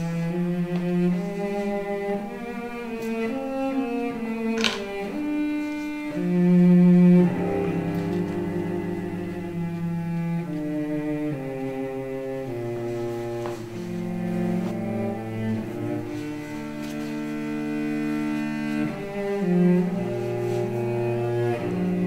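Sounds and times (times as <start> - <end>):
slow melody of held notes: 0.1 - 22.0.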